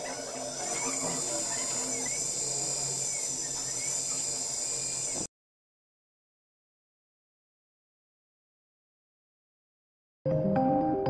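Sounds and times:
electric motor whine: 0.0 - 5.3.

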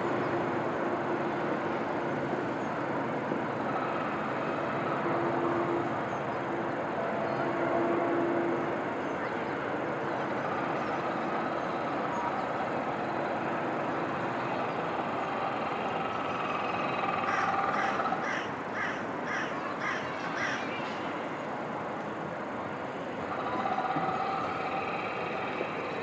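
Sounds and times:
steady background rush: 0.0 - 26.0
crow cawing: 17.3 - 21.0.

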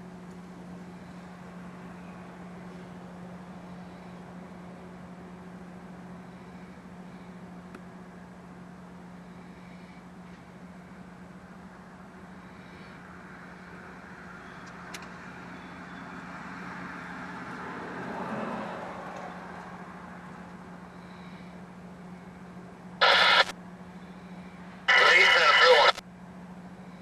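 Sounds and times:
steady low hum: 0.0 - 14.7, 19.7 - 27.0
vehicle passing: 13.1 - 21.4
scanner radio static burst: 23.0 - 23.5, 24.9 - 26.0.

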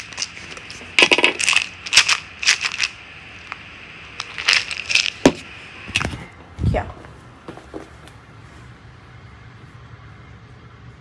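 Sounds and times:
dog biscuits crunching: 0.0 - 3.0, 4.2 - 5.2.

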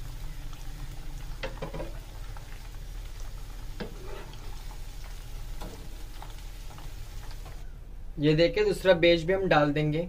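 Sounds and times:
sharp oil crackles: 0.0 - 7.6
food deep-frying in hot oil: 0.0 - 7.7.

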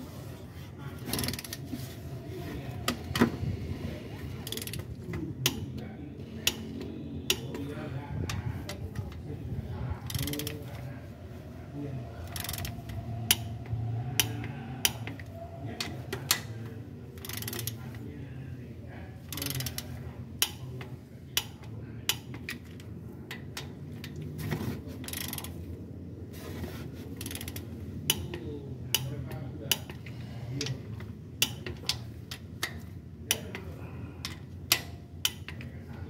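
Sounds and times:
ratchet wrench clicking: 1.1 - 1.6, 4.4 - 5.6, 6.4 - 6.6, 10.0 - 10.6, 12.2 - 15.3, 17.2 - 18.0, 19.3 - 20.6, 21.4 - 24.2, 25.0 - 25.6, 27.2 - 30.1, 31.4 - 33.6, 34.2 - 35.7.

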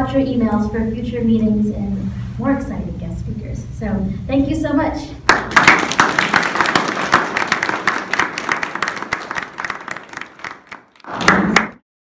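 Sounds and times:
audience applauding: 5.3 - 11.8.

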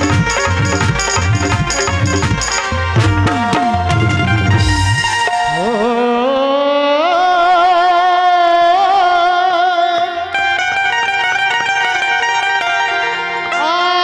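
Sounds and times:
quick plucked notes: 0.0 - 6.2
wavering held melody: 0.0 - 6.3.

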